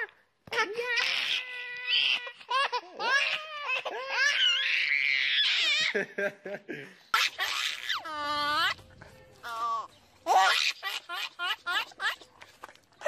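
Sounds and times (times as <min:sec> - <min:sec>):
baby laughing: 0:02.0 - 0:04.8, 0:07.1 - 0:08.8, 0:09.4 - 0:12.4.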